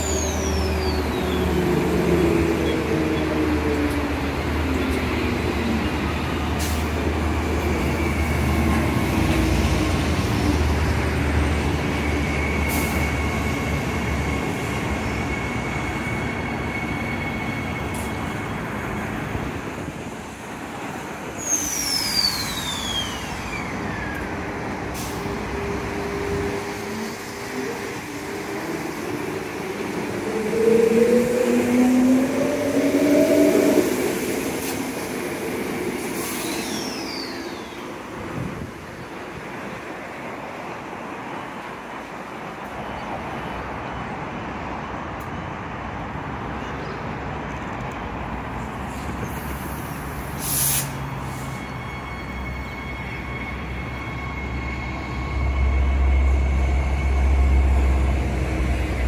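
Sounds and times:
train running noise: 0.0s - 59.0s
brief high whistle: 21.4s - 23.7s, 36.2s - 37.8s.

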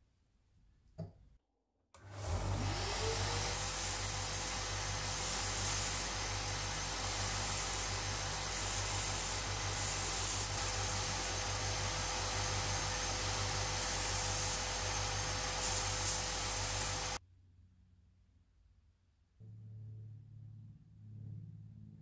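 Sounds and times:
wood sanding on belt: 2.6s - 17.2s.

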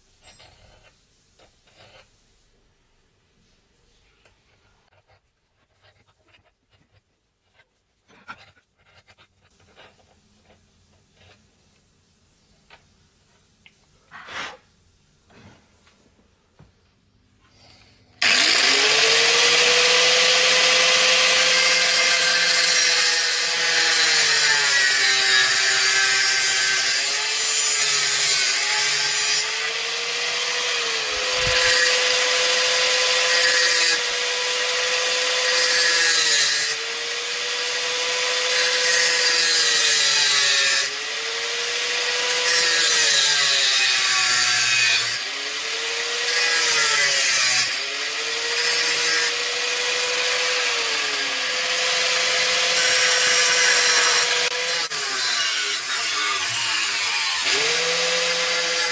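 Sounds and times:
angle grinder cutting steel: 18.2s - 58.9s.

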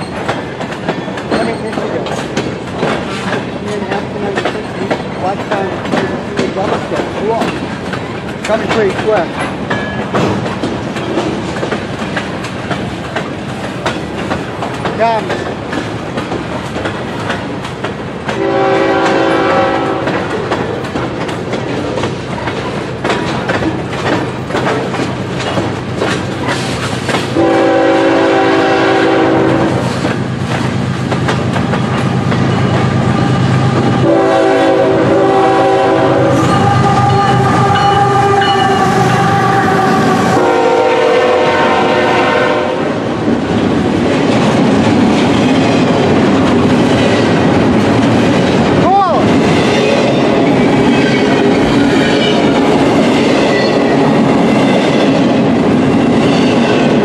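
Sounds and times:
freight train wheels clacking: 0.0s - 57.0s
locomotive air horn: 18.4s - 20.2s, 27.4s - 29.8s, 34.0s - 43.0s.

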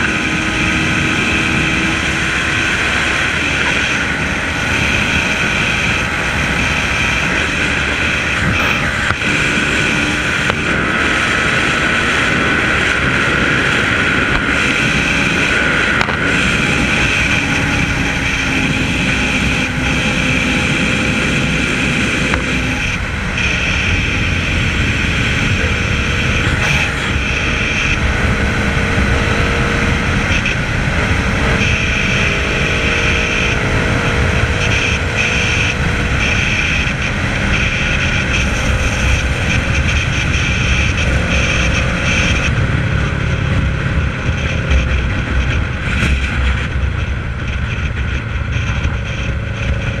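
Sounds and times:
heavy wind rush over microphone: 0.0s - 50.0s
motorcycle engine running: 0.0s - 50.0s.

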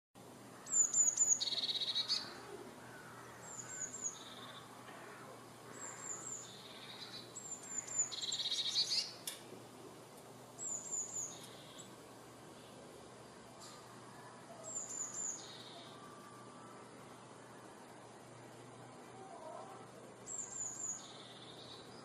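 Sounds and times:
bird singing high notes and trill: 0.6s - 2.4s, 5.7s - 9.2s, 14.6s - 17.9s, 20.2s - 22.0s.

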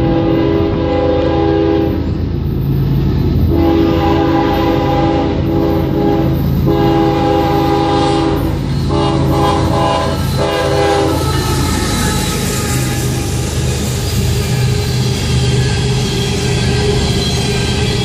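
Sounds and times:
locomotive air horn blasts: 0.0s - 2.0s, 3.5s - 13.4s
train wheels and cars passing: 0.0s - 18.0s.

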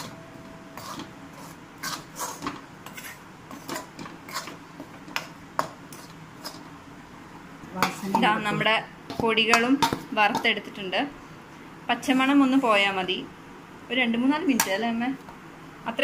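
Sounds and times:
metal spoon scraping metal pan: 0.7s - 4.6s.

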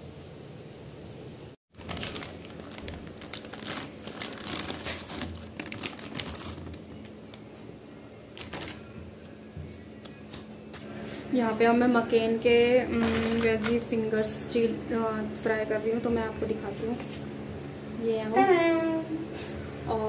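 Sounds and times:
plastic snack packet crinkling: 1.7s - 7.5s, 8.4s - 8.9s, 13.0s - 13.9s.

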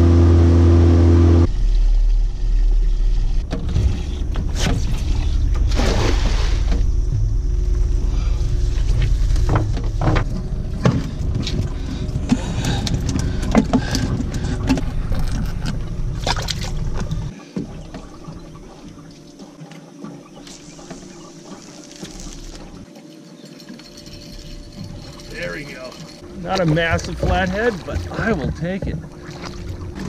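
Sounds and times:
low steady rumble: 0.0s - 19.4s, 23.9s - 30.0s
water splashing: 1.5s - 7.1s, 7.7s - 30.0s.

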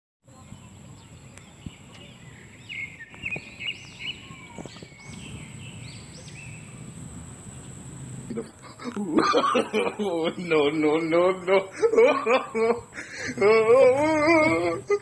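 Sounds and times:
outdoor background noise: 0.2s - 15.0s
small bird chirping: 0.3s - 9.1s
faint high-pitched whine: 0.3s - 15.0s.

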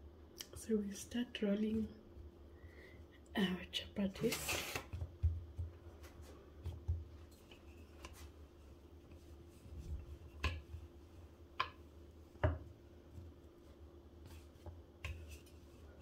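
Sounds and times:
dough pressed and rolled: 4.1s - 16.0s.

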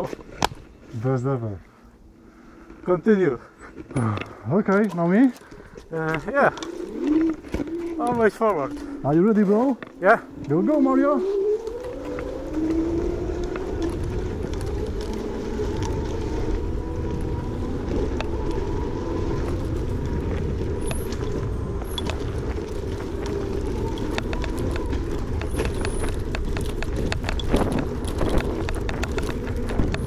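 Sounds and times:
tyres and wind rumble: 0.0s - 30.0s
rattles and knocks over bumps: 19.5s - 30.0s.

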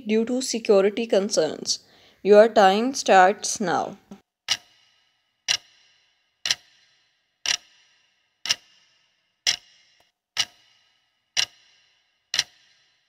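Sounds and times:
clock-like timer ticks: 4.5s - 13.0s.

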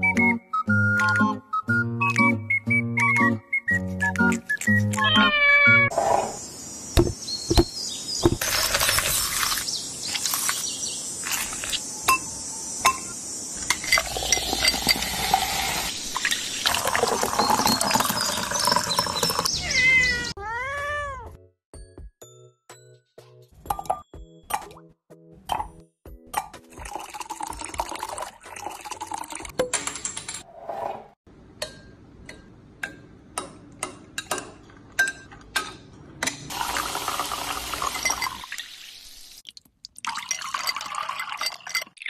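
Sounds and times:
background music: 0.0s - 5.9s
cat meowing: 5.0s - 5.9s, 19.6s - 21.4s
soda fizzing: 8.3s - 11.8s, 13.6s - 19.5s, 26.8s - 29.5s, 36.5s - 42.0s
ice clinking in glass: 13.7s - 15.6s, 16.2s - 19.4s, 36.7s - 38.6s, 40.0s - 42.0s.

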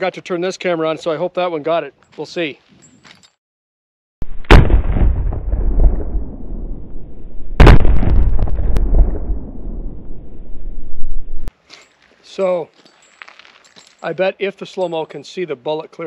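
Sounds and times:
revolver shots cracking and booming: 4.3s - 6.2s, 7.6s - 9.3s.

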